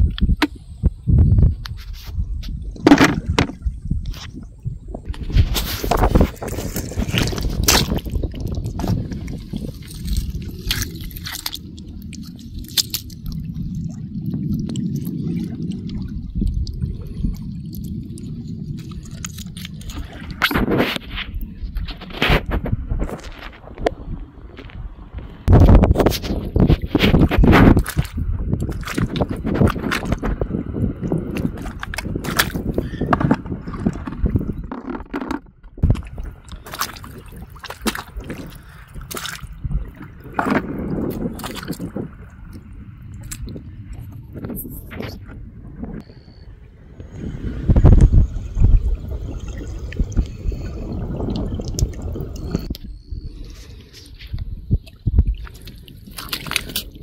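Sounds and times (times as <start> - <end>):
footsteps squelching in mud: 5.4 - 13.4, 25.6 - 30.3, 31.4 - 33.1, 35.8 - 39.6, 40.4 - 42.0, 53.7 - 57.0
low rumble: 38.0 - 55.4.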